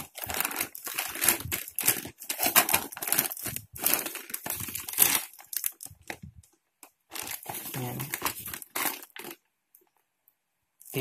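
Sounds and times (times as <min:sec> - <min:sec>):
foil lining crinkling and rustling: 0:00.0 - 0:06.5, 0:07.1 - 0:09.4.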